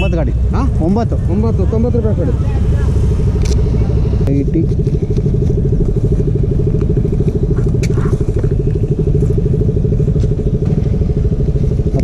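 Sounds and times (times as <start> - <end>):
motorcycle engine idling: 0.0 - 12.0.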